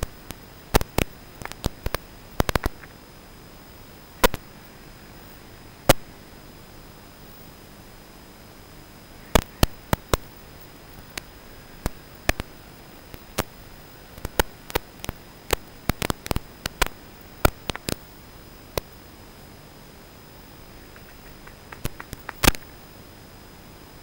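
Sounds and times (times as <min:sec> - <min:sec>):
sharp irregular clicks and pops: 0:00.0 - 0:03.0, 0:04.2 - 0:04.5, 0:05.9 - 0:06.1, 0:09.3 - 0:18.1, 0:20.7 - 0:22.8
electronic static hiss: 0:00.0 - 0:24.0.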